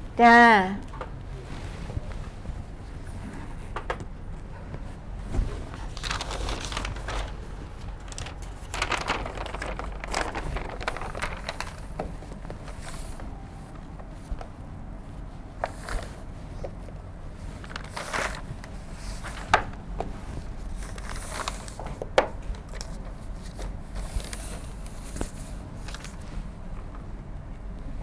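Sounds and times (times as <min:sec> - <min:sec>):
steady low hum: 0:00.0 - 0:28.0
paper rustling: 0:05.3 - 0:13.3, 0:15.6 - 0:16.8, 0:17.4 - 0:26.3.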